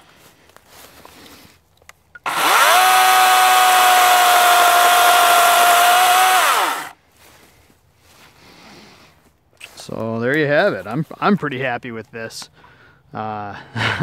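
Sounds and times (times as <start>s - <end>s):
chainsaw whine cutting log: 2.2s - 7.0s.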